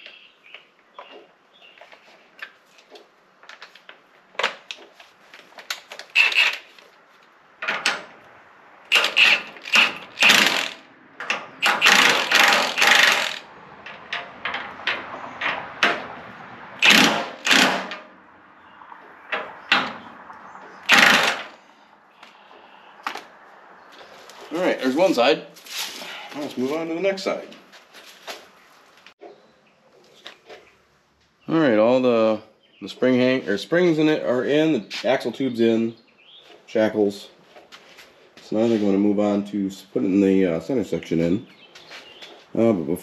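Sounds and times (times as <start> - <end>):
impact wrench hammering: 8.9 - 13.4, 16.8 - 18.1, 20.9 - 21.5.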